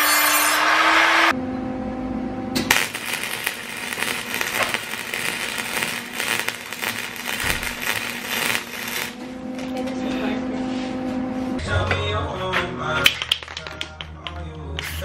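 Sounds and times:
welder arc crackling: 0:02.6 - 0:09.9.

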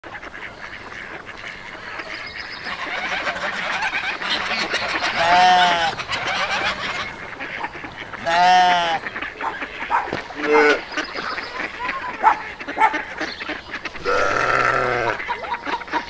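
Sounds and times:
poultry calling: 0:00.1 - 0:16.0
loud drawn-out bird call: 0:02.6 - 0:12.4.

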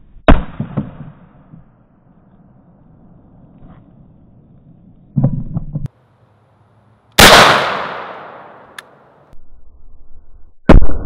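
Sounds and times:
shotgun shot: 0:00.3 - 0:01.2, 0:07.2 - 0:08.8.

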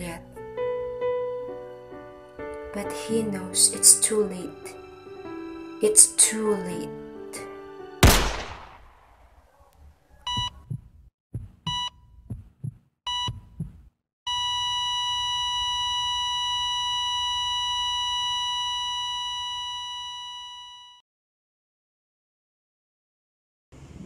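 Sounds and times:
heart monitor beeps: 0:10.2 - 0:21.0
heartbeat thumps: 0:10.3 - 0:13.9
flatline tone: 0:14.3 - 0:21.0.

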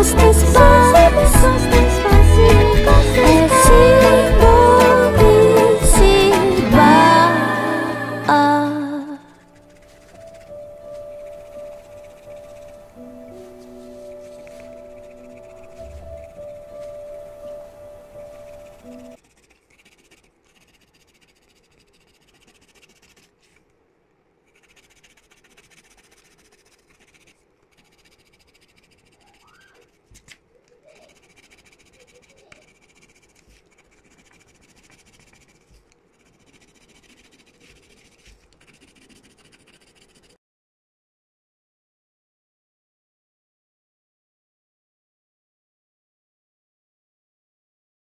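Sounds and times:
pencil scratching on paper: 0:00.0 - 0:07.0, 0:09.3 - 0:23.7, 0:24.4 - 0:40.4.

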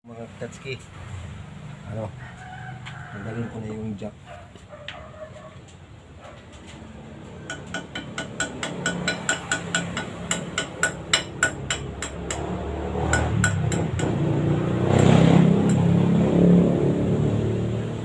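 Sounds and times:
hand tool clicking on metal: 0:07.5 - 0:12.5.

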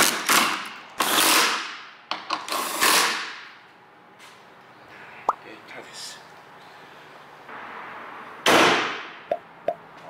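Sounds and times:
power tool driving bolts: 0:00.0 - 0:01.7.

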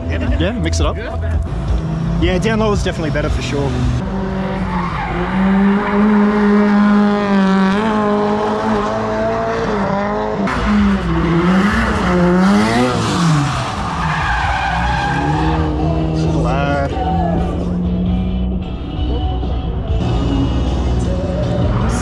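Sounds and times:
car engine revving high: 0:01.3 - 0:22.0
tyres screeching: 0:10.5 - 0:17.6.

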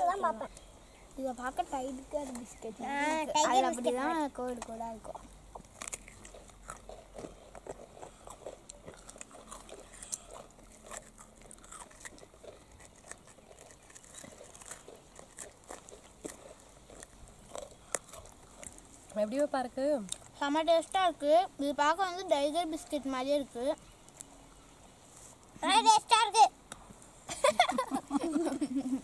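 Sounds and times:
people chewing crunchy biscuits: 0:04.6 - 0:21.0.

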